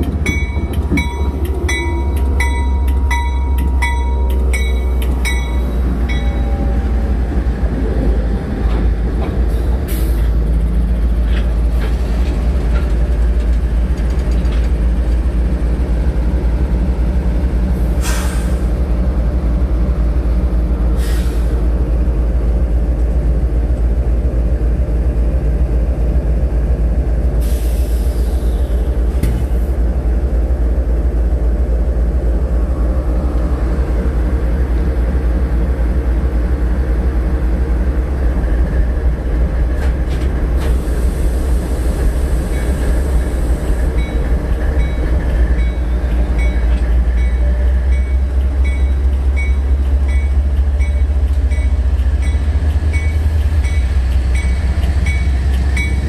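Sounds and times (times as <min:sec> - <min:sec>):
locomotive diesel engines rumbling: 0:00.0 - 0:56.0.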